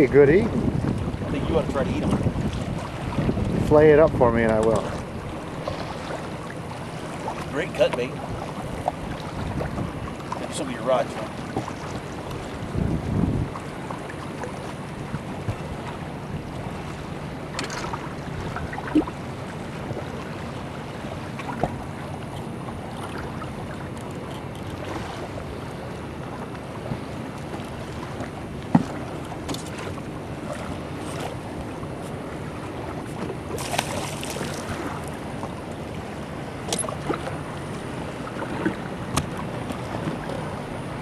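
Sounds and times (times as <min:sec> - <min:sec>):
wind noise on microphone: 0:00.0 - 0:06.0, 0:08.3 - 0:10.1, 0:12.3 - 0:13.9
water lapping against boat hull: 0:00.0 - 0:41.0
knocks on boat: 0:15.1 - 0:15.7, 0:28.7 - 0:29.9, 0:38.4 - 0:40.3.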